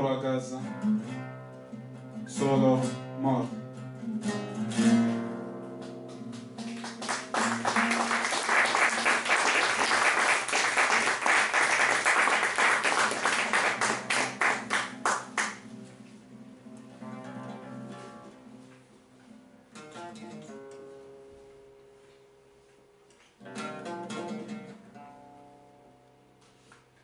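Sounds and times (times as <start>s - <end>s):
classical guitar plucking and strumming: 0.0s - 27.0s.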